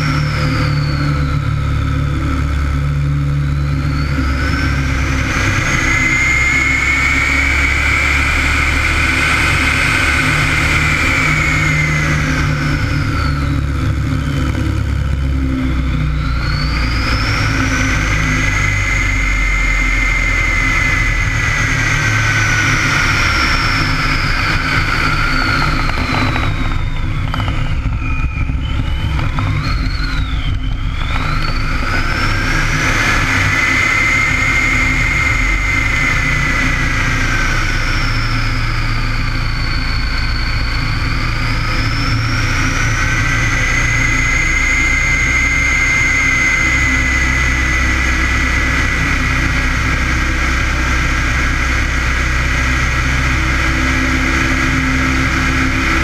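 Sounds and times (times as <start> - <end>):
propeller plane engine in flight: 0.0 - 56.0
wind rushing over wing: 20.2 - 39.2.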